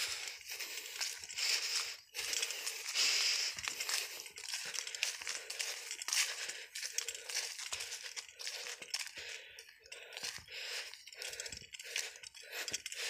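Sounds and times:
footsteps crunching on dry leaves: 0.0s - 11.0s.

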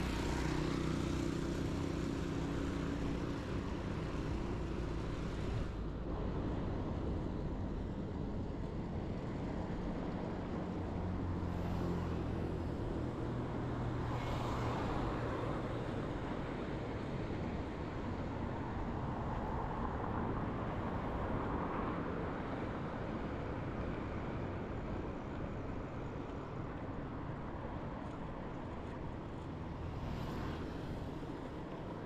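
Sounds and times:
cars passing: 29.7s - 32.0s.

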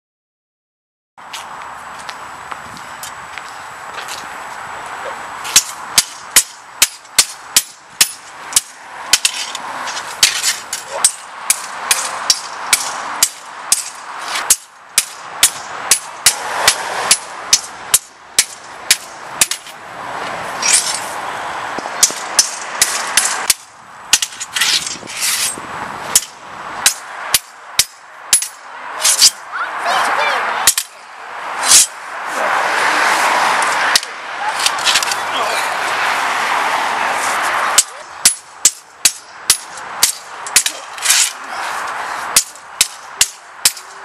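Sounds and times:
sword blades clashing: 5.5s - 19.8s, 20.6s - 21.1s, 22.0s - 29.5s, 30.6s - 32.0s, 37.8s - 41.4s, 42.4s - 44.0s.

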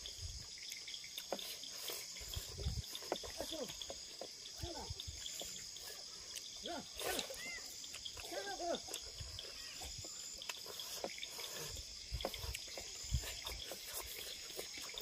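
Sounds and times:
crickets trilling: 0.0s - 15.0s
animal calls: 4.6s - 15.0s
chewing and lip-smacking: 4.9s - 15.0s.

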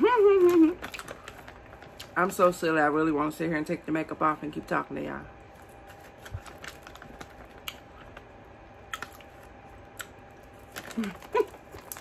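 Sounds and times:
chewing and mouth clicks: 5.6s - 12.0s.

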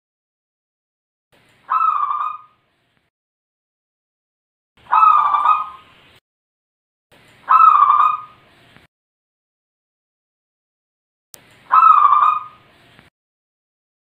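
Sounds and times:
dove cooing: 4.9s - 5.8s, 7.5s - 8.4s, 11.7s - 12.6s.

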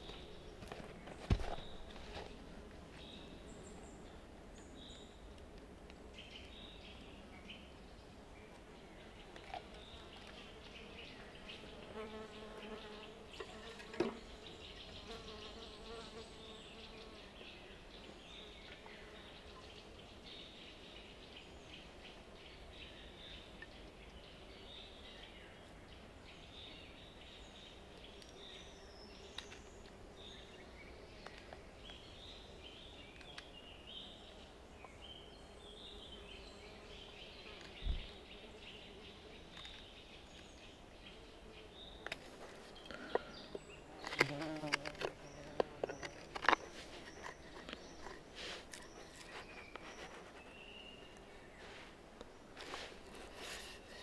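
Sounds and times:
birds chirping: 0.0s - 5.4s, 6.1s - 54.0s
flying insect buzzing: 43.9s - 46.1s.

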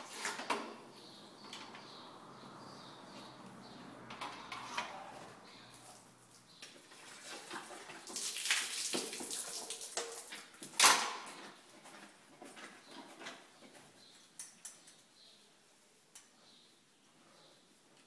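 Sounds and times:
water spray sloshing: 6.8s - 10.5s.

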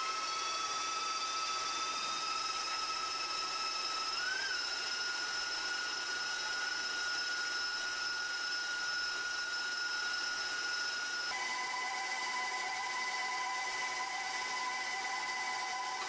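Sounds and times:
stand mixers whining: 0.0s - 16.0s.

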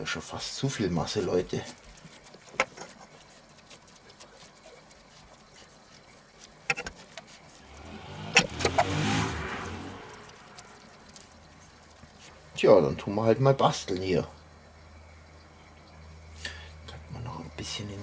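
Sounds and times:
soft handling noises: 0.6s - 7.7s.

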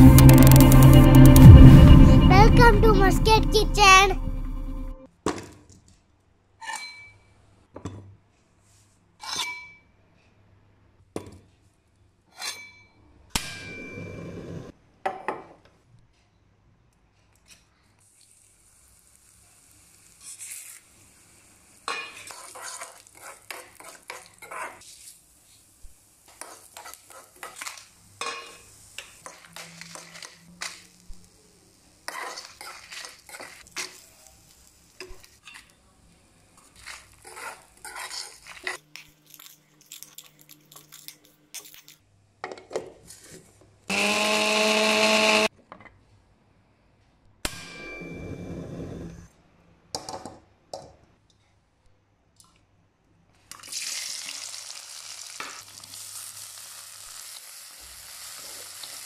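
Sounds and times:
faint steady sizzle: 17.8s - 42.0s, 53.4s - 59.0s
steel spoon scraping a pan: 19.9s - 21.2s, 21.8s - 25.7s, 26.3s - 31.0s, 32.1s - 34.1s, 36.6s - 42.0s.

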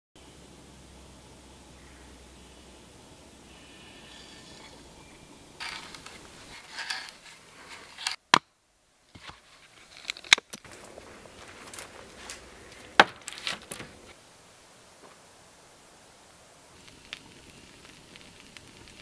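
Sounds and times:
hand auger scraping into log: 5.6s - 8.2s
knife cutting wood: 5.6s - 8.4s.

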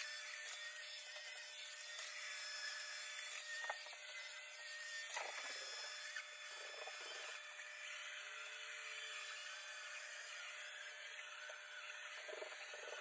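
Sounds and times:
robot vacuum whirring: 0.0s - 13.0s.

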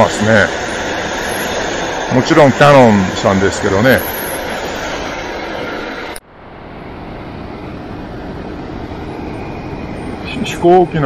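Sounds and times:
distant aircraft and ground equipment: 0.0s - 11.0s.

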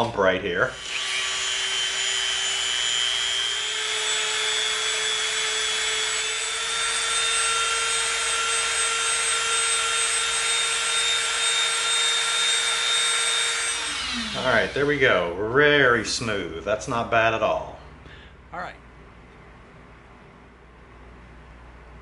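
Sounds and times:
rotary tool grinding foam: 0.7s - 14.9s.

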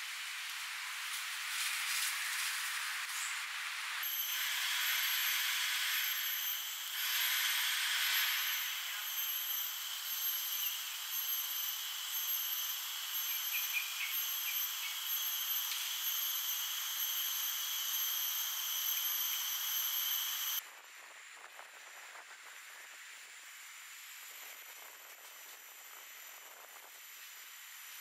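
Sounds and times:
cicadas droning: 0.4s - 28.0s.

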